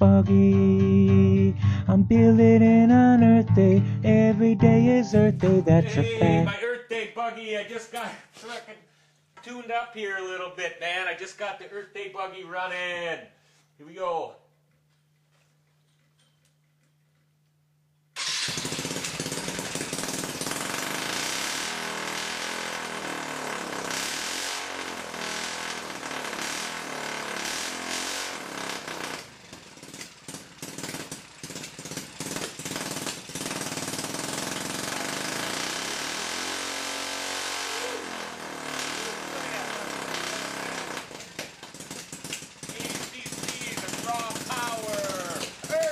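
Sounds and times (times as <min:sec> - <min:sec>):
small engine running: 0:18.2 - 0:45.9.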